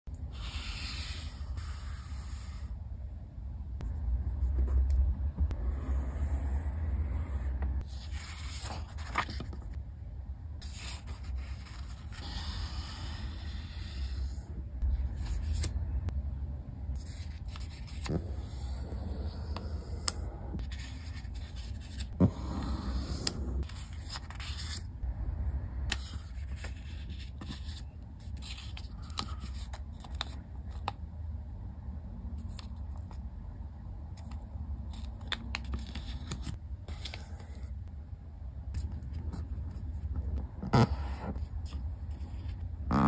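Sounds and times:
paper rustling and scraping: 7.8 - 9.8, 10.6 - 14.4, 17.0 - 24.9, 25.9 - 30.9.

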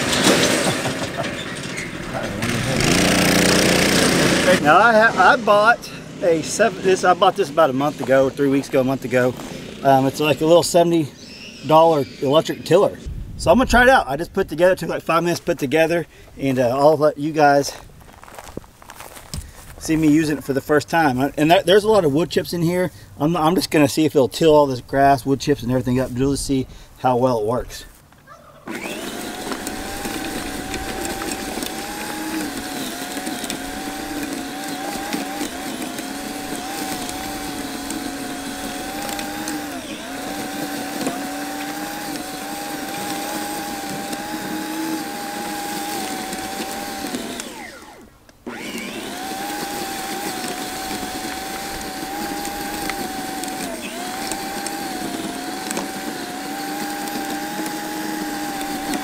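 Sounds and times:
electric garden tiller running: 0.0 - 12.4, 28.6 - 59.0.

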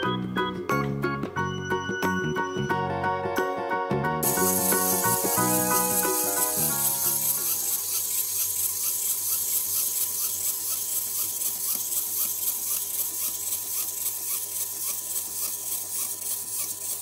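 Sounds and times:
rasping scrape against paper: 4.2 - 17.0.

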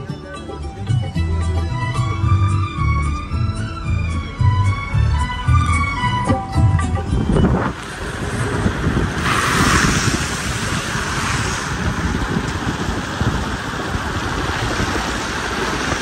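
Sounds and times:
wind rushing over microphone: 6.5 - 16.0
tyres hissing on wet road: 7.7 - 16.0.

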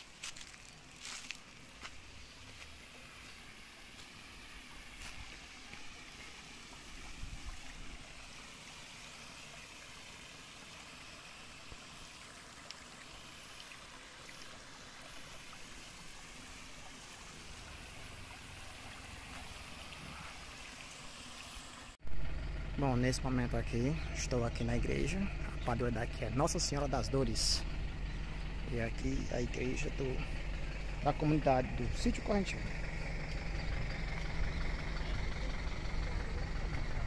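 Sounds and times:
water spilling over weir: 0.0 - 22.0
water trickling over stones: 0.0 - 22.0, 23.3 - 37.0.

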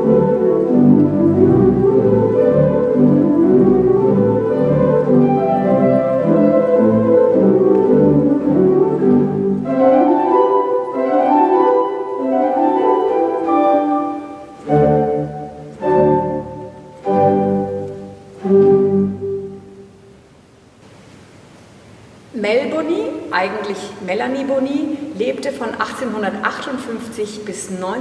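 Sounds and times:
pipe organ playing: 0.0 - 20.0.

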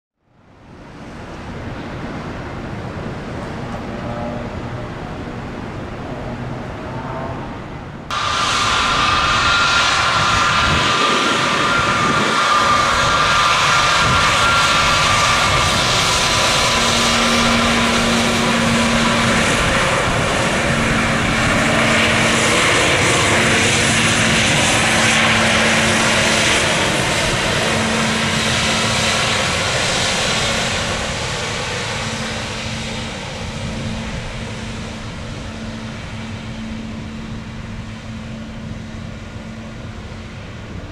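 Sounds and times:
jet engines rushing and whining: 0.3 - 40.9.

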